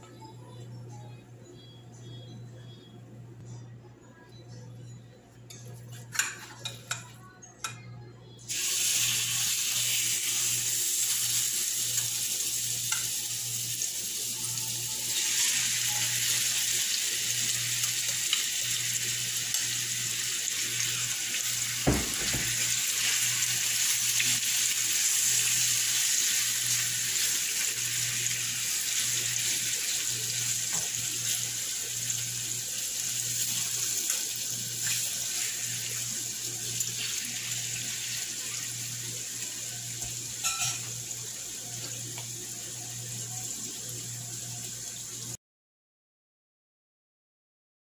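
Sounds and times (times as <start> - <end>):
chicken sizzling in oil: 8.5 - 45.4
utensil knocking on pan: 21.9 - 22.7.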